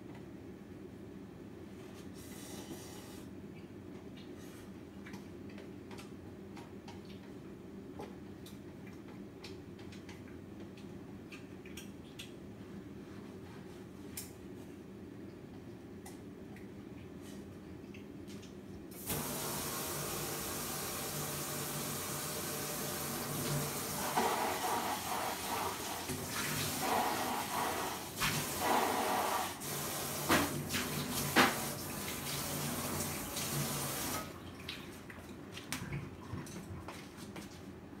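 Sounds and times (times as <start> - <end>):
water running from tap: 19.0 - 34.7.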